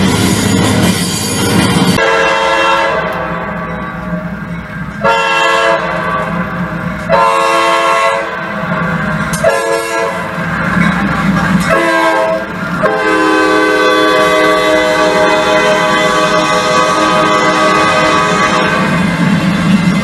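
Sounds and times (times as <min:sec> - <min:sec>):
model locomotive horn: 0:02.0 - 0:03.2, 0:05.0 - 0:06.0, 0:07.1 - 0:08.4, 0:09.4 - 0:10.3, 0:11.7 - 0:19.0.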